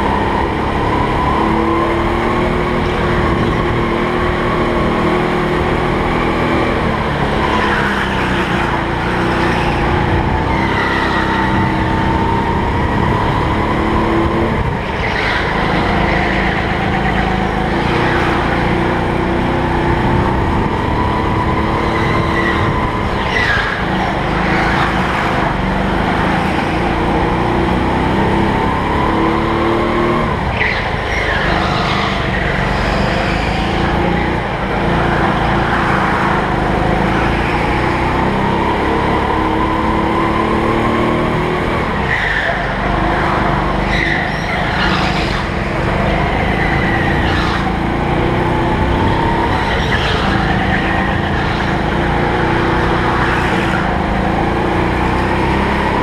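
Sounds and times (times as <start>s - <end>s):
kart engine revving: 0.0s - 56.0s
tyres squealing: 42.0s - 54.2s.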